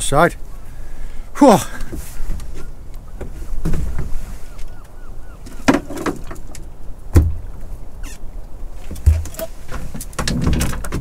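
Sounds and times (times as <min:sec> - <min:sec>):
wind: 0:00.0 - 0:11.0
knocks and bumps in a boat: 0:01.8 - 0:04.4, 0:05.5 - 0:07.5, 0:08.8 - 0:11.0.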